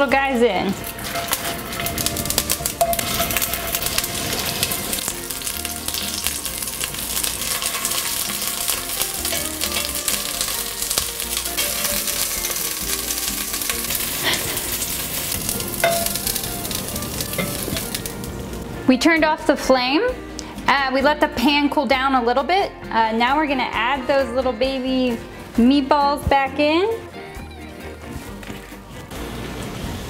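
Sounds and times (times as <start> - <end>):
meatballs sizzling in oil: 0.0 - 18.7
metal tongs clicking on pot: 15.8 - 16.4.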